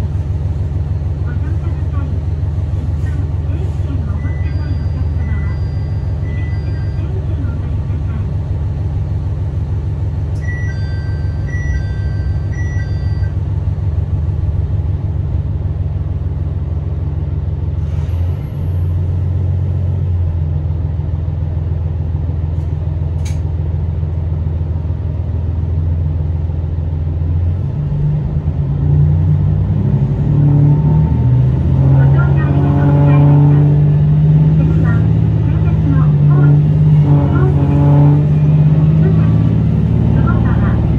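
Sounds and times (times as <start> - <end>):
railcar diesel engine idling: 0.0 - 40.9
short electronic beeps: 4.1 - 7.2, 10.4 - 13.4
engine revving up: 27.7 - 40.9.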